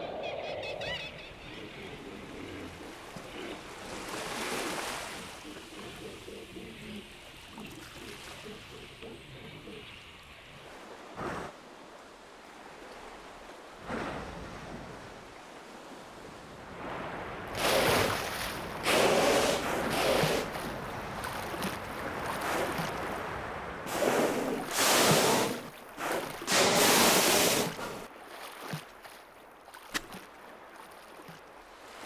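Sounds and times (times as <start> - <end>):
whales blowing: 0.0 - 11.6, 13.7 - 15.1, 16.8 - 28.1
water washing: 1.2 - 11.5, 17.4 - 32.0.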